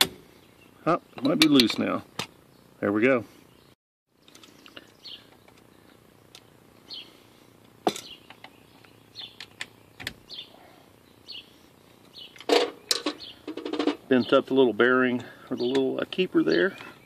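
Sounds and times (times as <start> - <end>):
small birds chirping: 0.2 - 17.0
metal clatter: 12.4 - 14.1.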